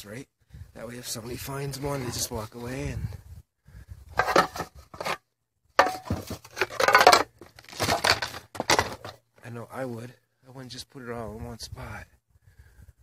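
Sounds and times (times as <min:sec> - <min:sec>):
tin cans scraping and clattering: 0:01.7 - 0:02.5, 0:04.2 - 0:05.2, 0:05.8 - 0:09.2.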